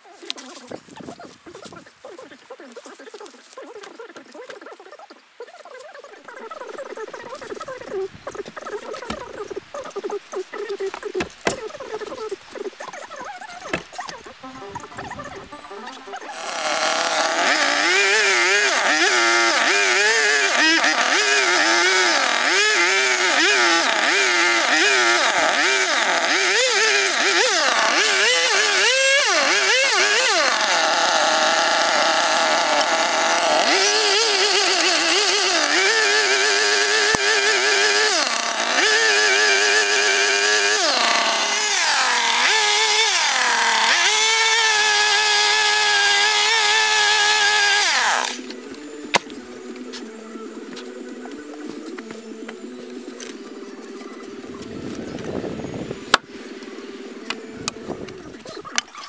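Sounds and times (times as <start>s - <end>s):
chainsaw cutting log: 6.4s - 59.0s.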